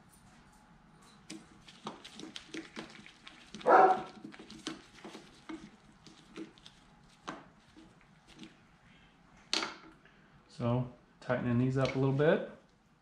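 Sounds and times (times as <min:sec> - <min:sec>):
short bark-like sound: 0:03.7 - 0:04.1.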